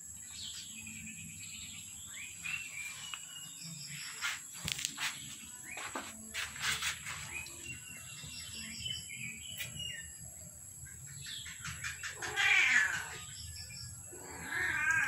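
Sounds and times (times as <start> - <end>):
kitten meowing: 14.4 - 15.0.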